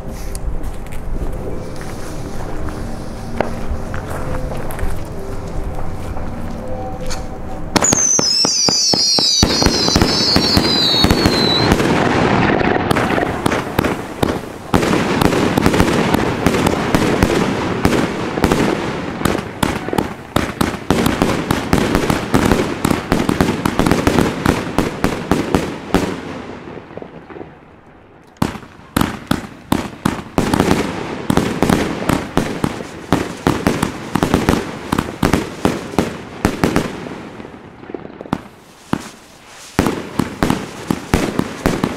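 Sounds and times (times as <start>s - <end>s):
falling whistle: 6.5s - 11.7s
firework battery shots and crackling: 7.7s - 27.8s, 28.4s - 41.9s.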